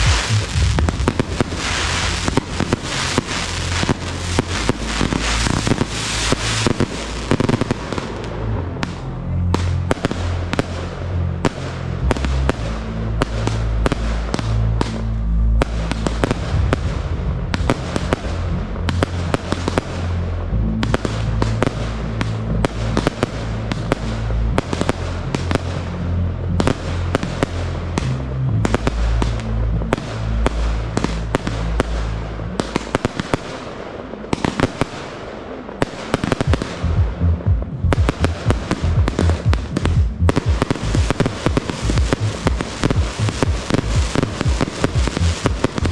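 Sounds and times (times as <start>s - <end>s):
fireworks bursting and crackling: 0.0s - 45.9s
music with deep bass: 0.0s - 45.9s.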